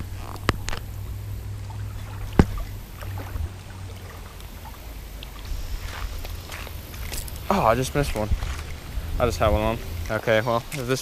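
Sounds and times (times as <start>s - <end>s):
fishing reel handling rumble: 0.0s - 4.5s.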